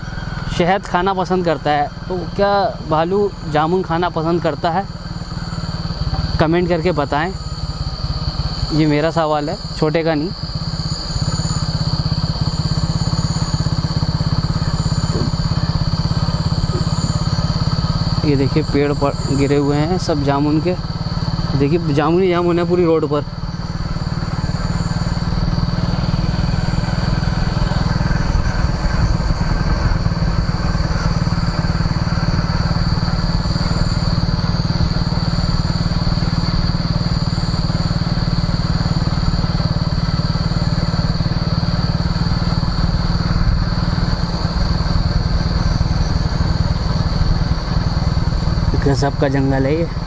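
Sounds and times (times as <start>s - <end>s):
high-pitched whine: 0.0s - 50.0s
motorcycle engine and road rumble: 0.0s - 50.0s.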